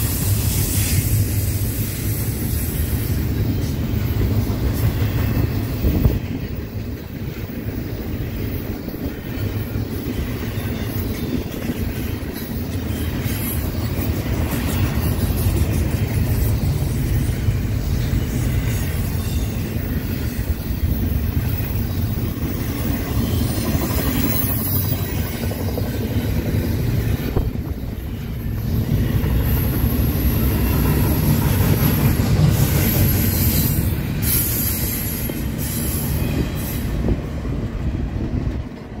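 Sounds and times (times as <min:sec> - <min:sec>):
train wheels rumbling on rail: 0:00.0 - 0:39.0.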